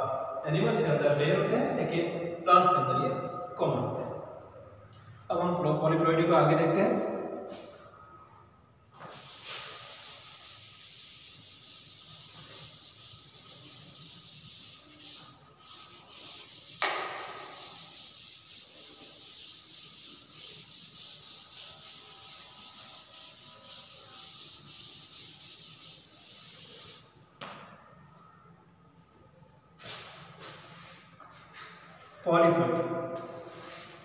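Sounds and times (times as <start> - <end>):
duster rubbing on chalkboard: 9.0 - 27.2
sharp knock: 16.8 - 17.4.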